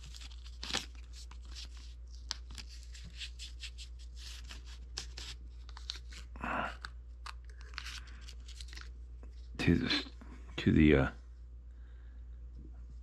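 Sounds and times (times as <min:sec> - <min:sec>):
tape rustling: 0:00.0 - 0:09.5
tape crinkling and crackling: 0:00.0 - 0:09.7.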